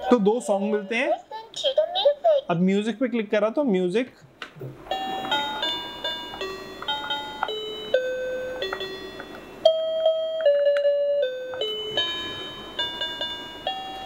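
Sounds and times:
electronic toy piano notes: 4.8s - 14.0s.

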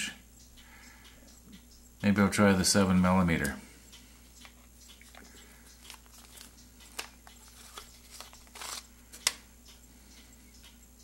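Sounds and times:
plastic rustle: 5.9s - 9.4s.

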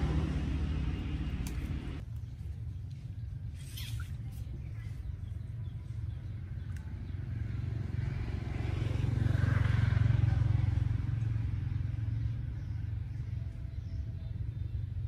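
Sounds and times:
motor engine passing by: 0.0s - 2.0s, 3.2s - 15.0s.

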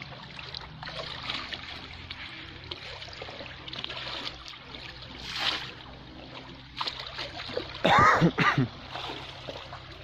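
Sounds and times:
small splashes and clicks: 0.0s - 7.8s
shallow water trickling and lapping: 0.0s - 10.0s.

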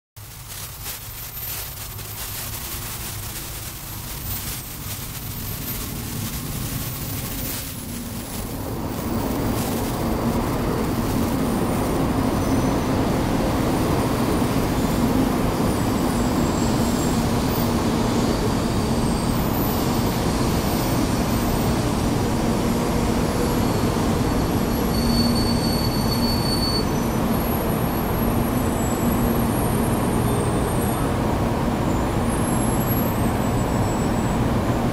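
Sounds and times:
train rumbling past: 0.2s - 34.9s
high squeals: 1.1s - 14.2s, 23.3s - 31.0s.

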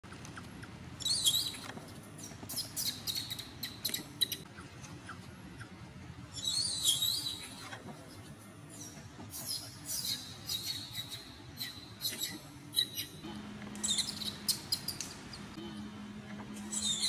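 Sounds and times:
baby monkey screeching: 1.0s - 1.6s, 2.2s - 4.4s, 8.8s - 13.1s, 13.8s - 15.0s.

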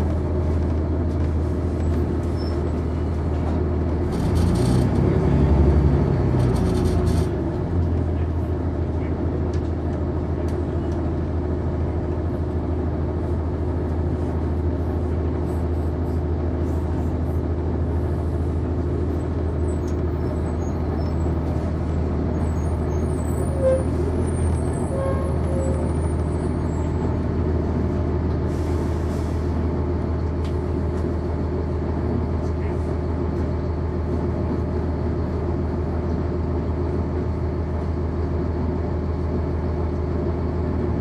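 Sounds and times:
bus diesel engine droning: 0.0s - 41.0s
faint high squeaks: 22.4s - 27.1s.

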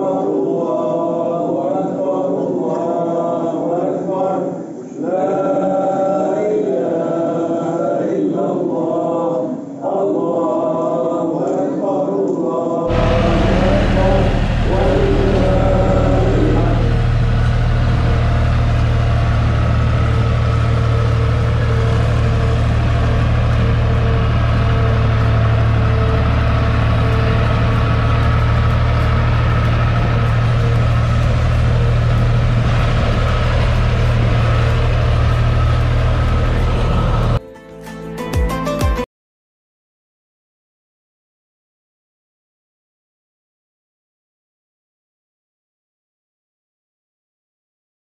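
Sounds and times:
diesel engine running under load: 12.9s - 37.4s.

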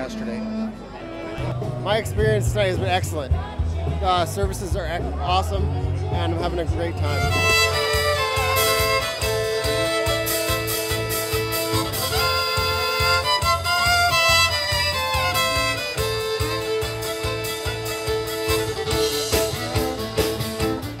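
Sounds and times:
fiddle playing held notes: 0.0s - 1.6s, 6.8s - 21.0s
guitar: 0.0s - 21.0s
steady beat: 6.3s - 21.0s.

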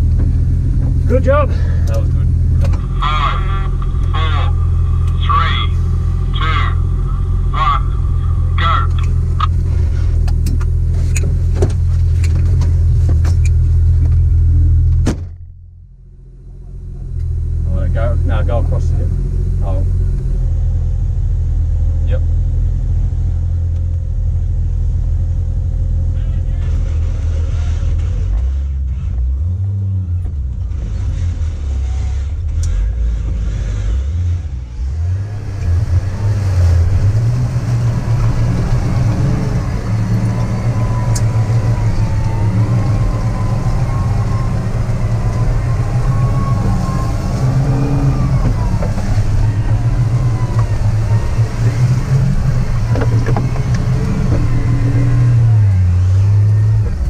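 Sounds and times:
truck engine revving: 0.0s - 57.0s
wavering high whine: 2.2s - 10.1s, 36.3s - 55.9s.

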